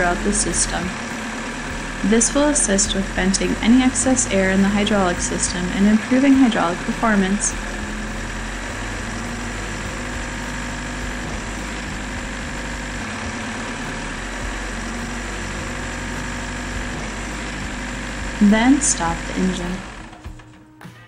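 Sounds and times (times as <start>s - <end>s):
diesel engine running: 0.0s - 20.6s.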